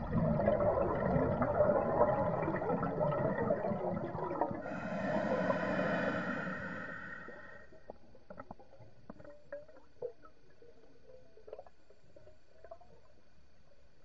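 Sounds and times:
regulator bubbles underwater: 0.0 - 14.0.

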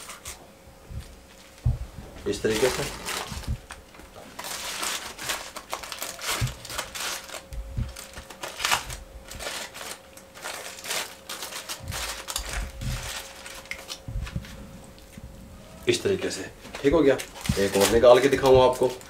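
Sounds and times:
aluminium foil crinkling: 0.0 - 0.4, 1.0 - 19.0
utensils clicking against foil: 0.0 - 0.4, 2.4 - 14.0, 16.2 - 19.0.

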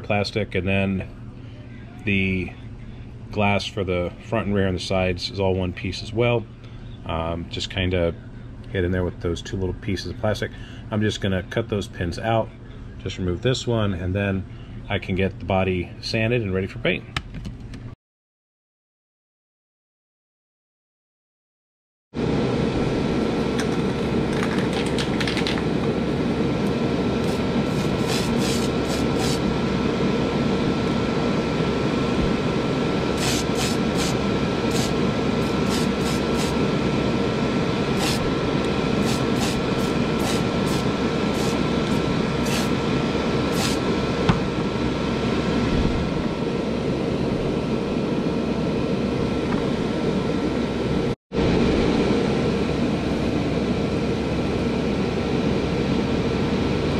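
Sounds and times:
fan whirring: 22.2 - 56.9.

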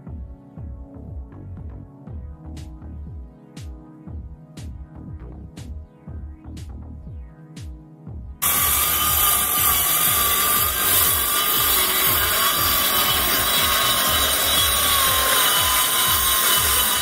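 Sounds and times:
circular saw cutting plywood: 8.4 - 17.0.

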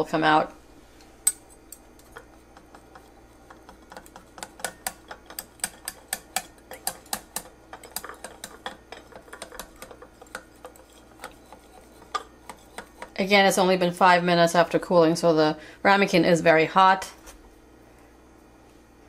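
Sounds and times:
metal blade scraping ceramic ramekin: 3.9 - 13.3.

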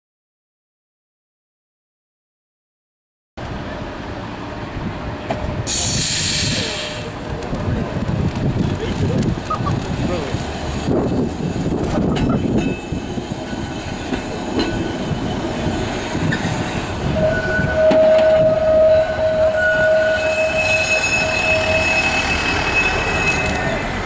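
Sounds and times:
tram rumbling along track: 3.4 - 24.0
tram wheels squealing: 5.2 - 7.2, 10.5 - 24.0.

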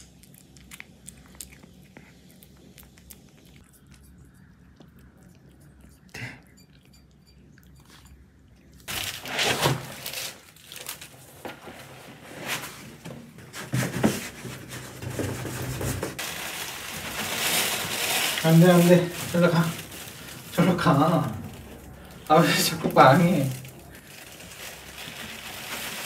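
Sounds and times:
cat litter scraping and rustling: 8.9 - 26.0.

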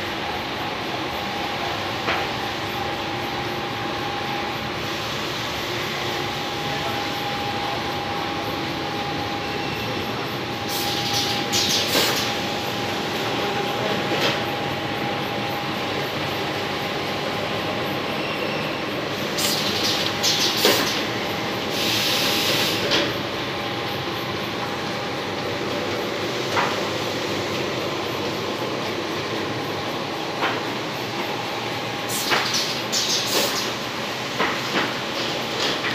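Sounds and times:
machine drone with thin whine: 0.0 - 35.9
short bursts of hiss: 21.7 - 22.9.

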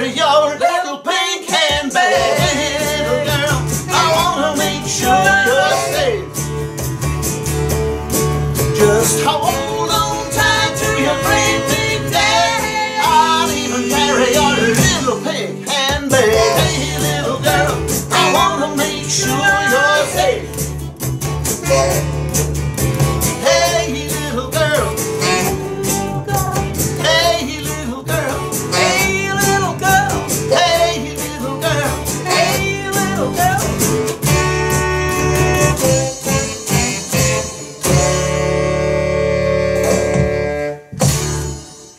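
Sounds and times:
person singing: 0.0 - 6.3, 8.8 - 20.7, 23.4 - 34.0, 35.6 - 38.4
electric guitar: 1.4 - 41.9
electric bass: 2.1 - 41.8.

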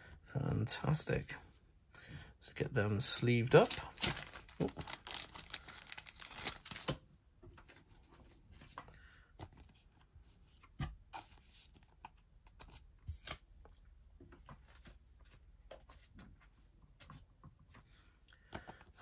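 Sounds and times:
plastic sleeve crinkling: 3.5 - 7.0.

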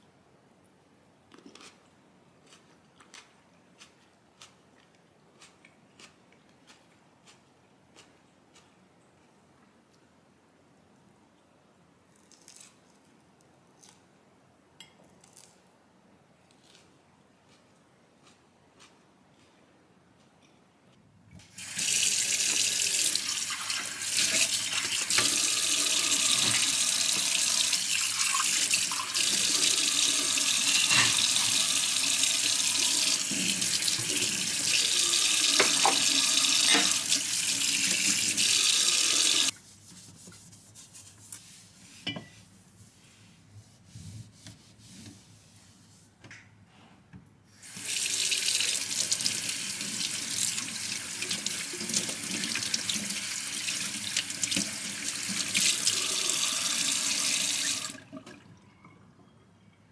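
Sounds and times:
tap water splashing into sink: 35.5 - 37.2.

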